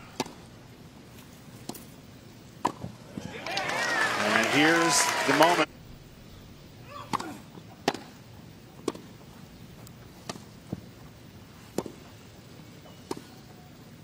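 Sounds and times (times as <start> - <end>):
racket hitting tennis ball: 0.2 - 0.4, 6.9 - 8.2, 8.8 - 9.1, 11.7 - 12.0.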